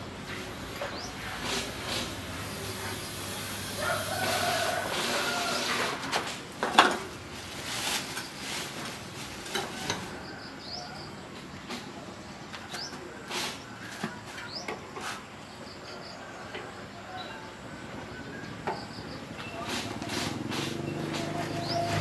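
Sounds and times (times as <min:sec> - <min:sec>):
bird chirping: 0:20.3 - 0:22.0.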